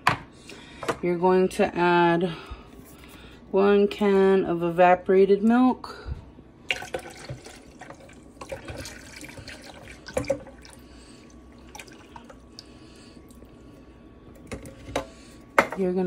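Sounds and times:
drips: 0:06.7 - 0:13.7.

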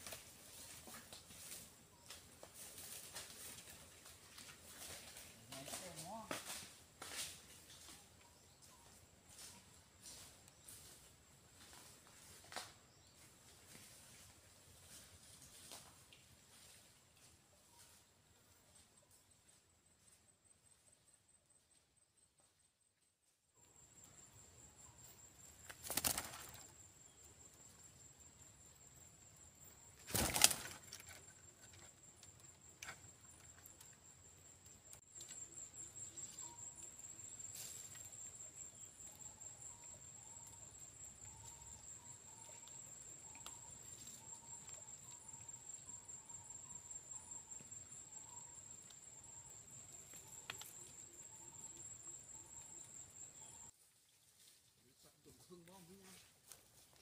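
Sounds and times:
parakeet wings fluttering: 0:25.6 - 0:26.7, 0:30.0 - 0:31.1.

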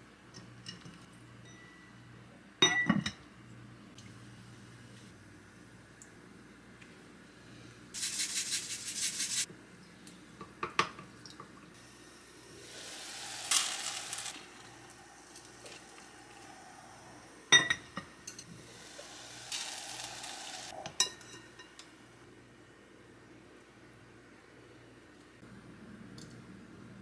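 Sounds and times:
food sizzling in a frying pan: 0:11.8 - 0:20.9.

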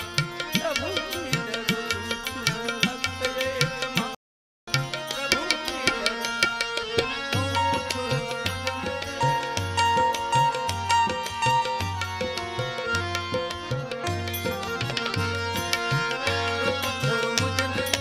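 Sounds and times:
hand drum rhythm: 0:00.0 - 0:04.1, 0:04.7 - 0:18.0
harmonium chords: 0:00.0 - 0:18.0
person singing: 0:05.1 - 0:18.0.

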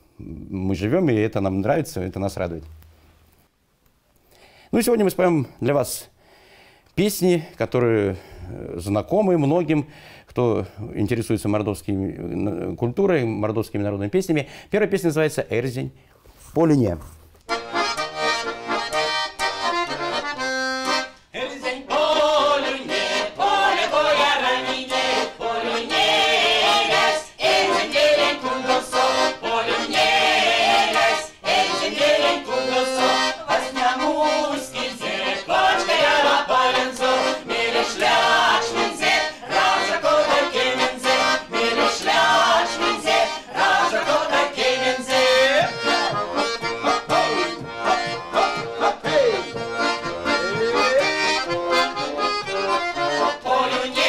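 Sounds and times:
accordion: 0:17.4 - 0:54.0
women singing a folk song: 0:21.3 - 0:51.2, 0:51.8 - 0:54.0.

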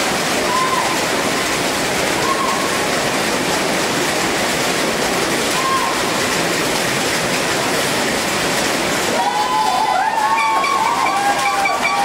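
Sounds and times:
crowd cheering: 0:00.4 - 0:01.2, 0:02.2 - 0:02.8, 0:05.5 - 0:06.2, 0:09.0 - 0:12.0
wavering high-pitched tone: 0:10.4 - 0:12.0.

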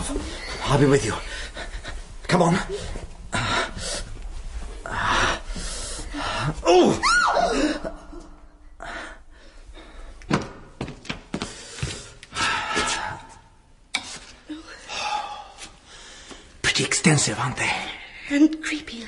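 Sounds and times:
woman's startled cry: 0:06.8 - 0:07.8.

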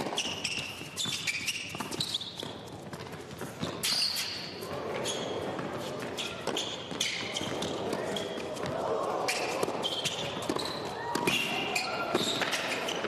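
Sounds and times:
shoes squeaking on court: 0:00.0 - 0:13.0
crowd murmur: 0:04.6 - 0:13.0
tennis ball hitting racquets: 0:09.3 - 0:13.0.

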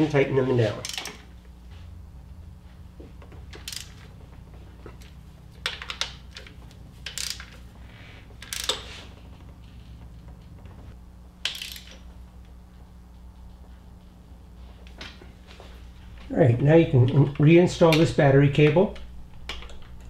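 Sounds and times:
steady low hum: 0:00.0 - 0:20.0
socket ratchet clicking: 0:00.8 - 0:01.2, 0:03.5 - 0:04.1, 0:05.0 - 0:07.6, 0:08.4 - 0:08.9, 0:11.4 - 0:12.1.

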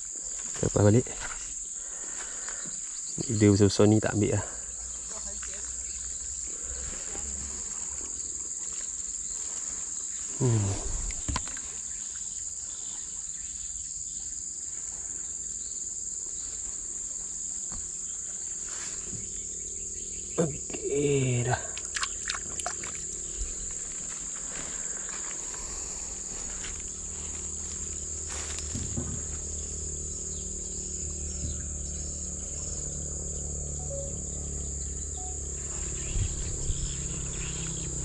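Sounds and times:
high-pitched insect drone: 0:00.0 - 0:38.0
person speaking: 0:10.4 - 0:11.2.

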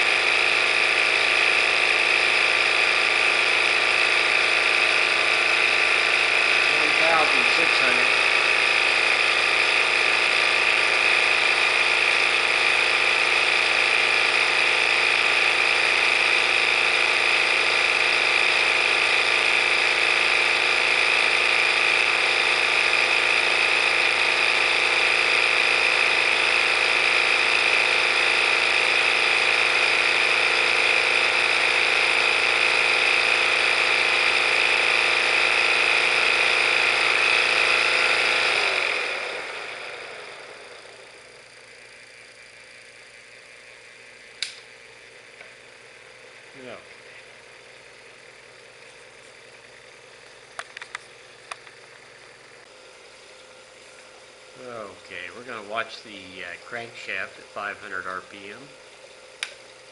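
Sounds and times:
high whine: 0:00.0 - 0:20.6, 0:45.4 - 0:58.7
model engine whirring: 0:00.0 - 0:59.9.

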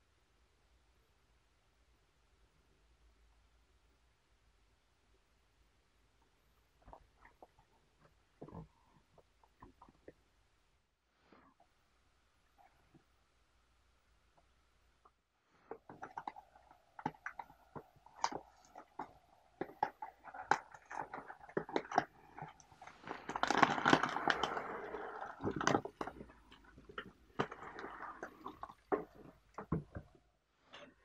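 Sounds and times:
foil bag crinkling: 0:20.4 - 0:26.3.

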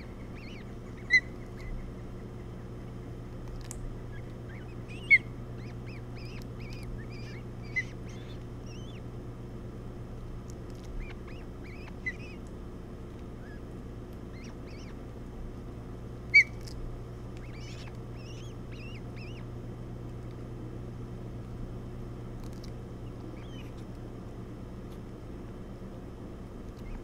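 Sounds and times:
high chirping bird calls: 0:00.0 - 0:02.0, 0:04.0 - 0:09.0, 0:11.0 - 0:12.4, 0:13.4 - 0:13.6, 0:14.3 - 0:15.0, 0:16.3 - 0:16.6, 0:17.4 - 0:19.5, 0:23.0 - 0:23.8, 0:26.8 - 0:27.0
steady low hum: 0:00.0 - 0:27.0.

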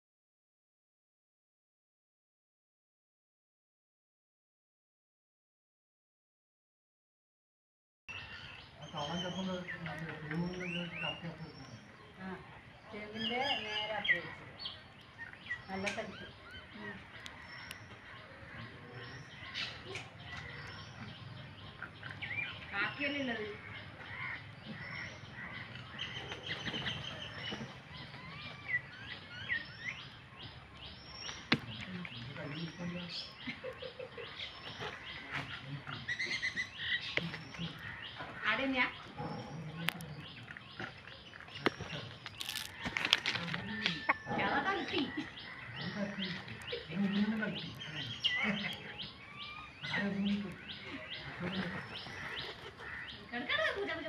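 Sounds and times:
birds chirping and whistling: 0:12.9 - 0:53.3.

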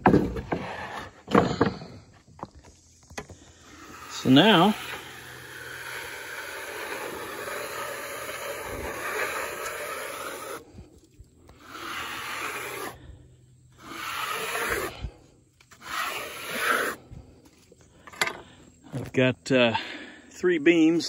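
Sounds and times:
metal scraper scraping wood: 0:00.0 - 0:01.9, 0:03.3 - 0:10.6, 0:11.5 - 0:13.0, 0:13.8 - 0:17.0.

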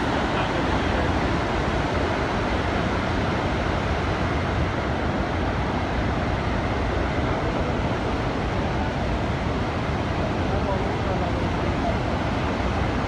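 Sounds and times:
waterfall rushing water: 0:00.0 - 0:02.9.

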